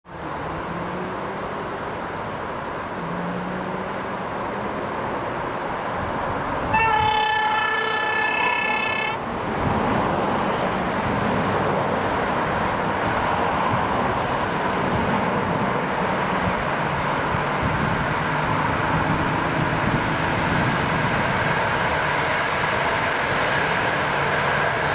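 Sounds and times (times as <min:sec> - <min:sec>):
train running noise: 0:00.1 - 0:24.9
electric train horn: 0:06.7 - 0:09.2.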